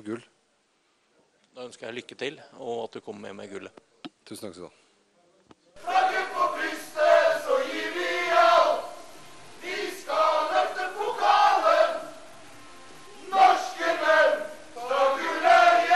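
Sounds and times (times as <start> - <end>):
men singing together: 5.8 - 12.2, 13.2 - 15.9.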